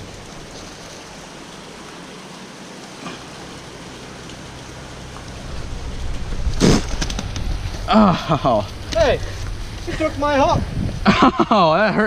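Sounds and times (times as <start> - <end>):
hiss of moving water: 0.0 - 11.7
low rumble: 4.6 - 11.4.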